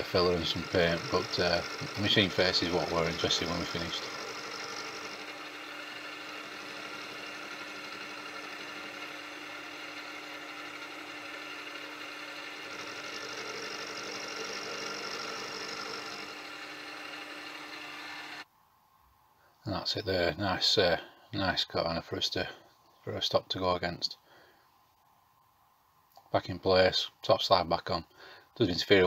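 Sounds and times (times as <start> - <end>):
end mill cutting metal whine: 0.0 - 18.4
milling machine hum: 0.0 - 18.4.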